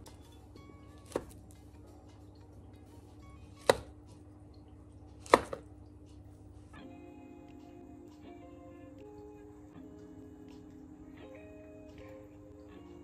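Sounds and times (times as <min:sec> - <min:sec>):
knife hitting cutting board: 0:03.6 - 0:03.9, 0:05.2 - 0:05.6.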